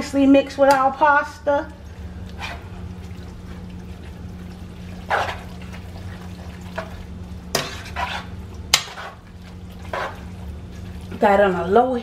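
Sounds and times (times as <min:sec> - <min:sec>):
steady low hum: 0:00.0 - 0:12.0
spoon scraping through thick sauce: 0:07.6 - 0:10.3.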